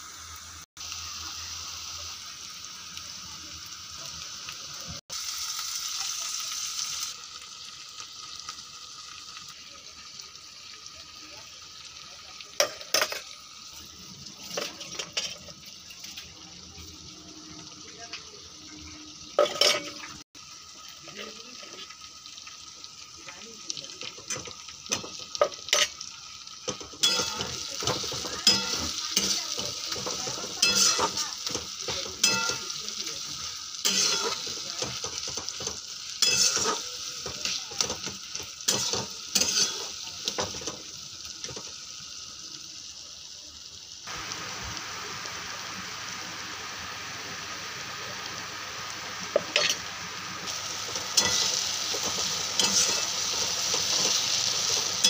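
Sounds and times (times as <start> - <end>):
masala sizzling in a frying pan: 0.0 - 55.0
metal spatula scraping a pan: 14.4 - 16.3, 19.4 - 20.2, 26.7 - 32.8, 33.8 - 40.6, 51.2 - 55.0.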